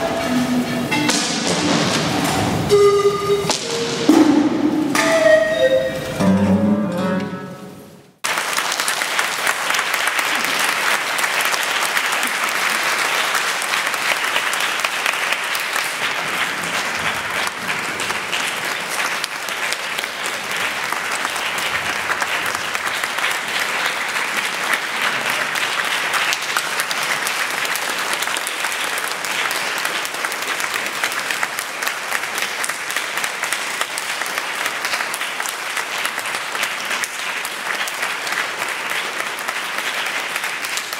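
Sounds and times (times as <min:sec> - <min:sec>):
audience applause: 0:08.2 - 0:40.9.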